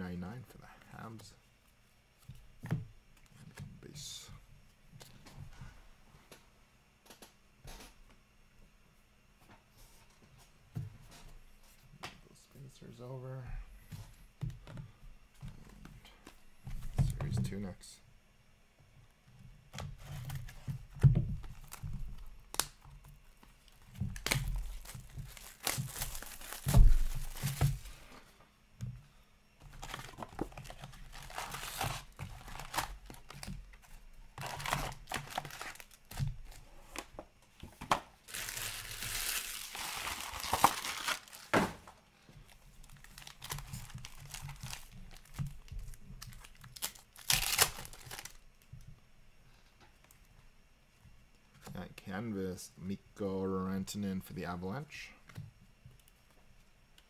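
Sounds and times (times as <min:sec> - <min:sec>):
wrapper crinkling and tearing: 0:23.5 - 0:27.9, 0:29.7 - 0:33.5, 0:34.4 - 0:36.6, 0:38.2 - 0:41.6, 0:42.8 - 0:48.4
cardboard tear strip ripping: 0:38.3 - 0:41.6, 0:46.5 - 0:48.3.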